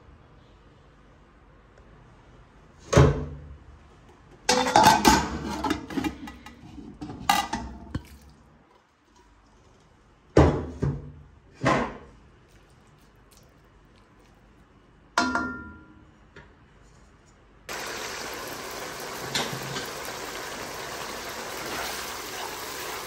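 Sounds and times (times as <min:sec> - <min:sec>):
cookware clattering: 0:04.5 - 0:08.1.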